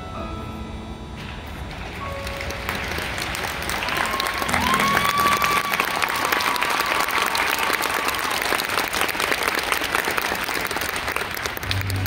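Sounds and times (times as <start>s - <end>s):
audience applauding: 2.0s - 12.0s
crowd cheering cry: 3.7s - 9.2s.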